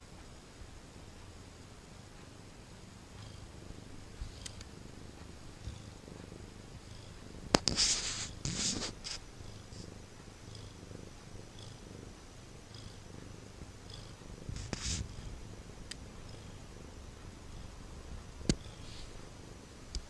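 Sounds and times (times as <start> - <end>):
cat purring: 0.0 - 20.0
rustling: 3.4 - 12.1, 13.0 - 16.0.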